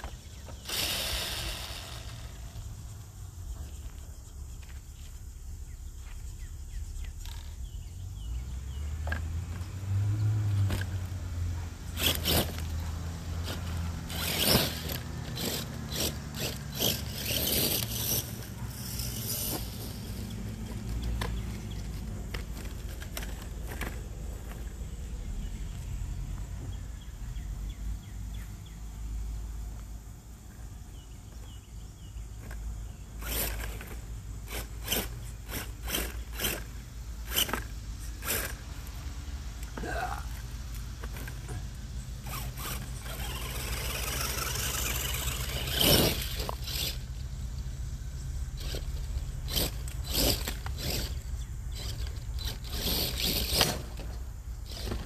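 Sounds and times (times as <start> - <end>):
toy truck motor whirring: 0.0 - 3.1, 11.8 - 24.6, 33.2 - 39.0, 39.6 - 55.0
scraping: 42.2 - 47.0.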